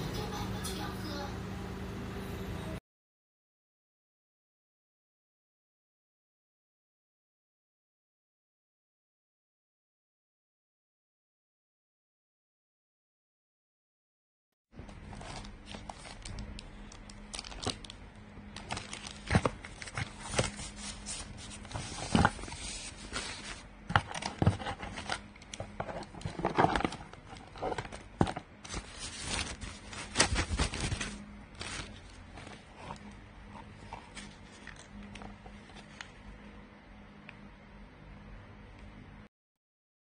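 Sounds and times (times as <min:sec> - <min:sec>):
faint steady hum: 0:14.8 - 0:39.3
cardboard rustling: 0:14.9 - 0:16.4, 0:18.5 - 0:36.0
plastic wrapping crinkling: 0:14.9 - 0:36.0
clicks and knocks of cables: 0:23.9 - 0:28.8.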